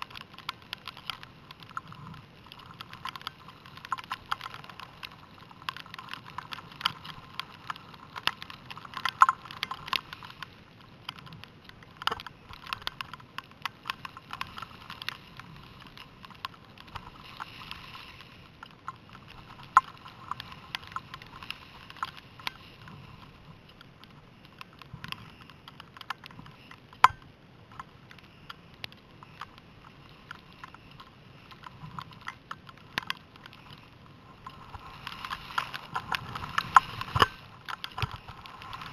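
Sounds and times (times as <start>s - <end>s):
wind: 0.0s - 38.9s
skis hissing on snow: 17.1s - 18.6s, 34.5s - 37.5s.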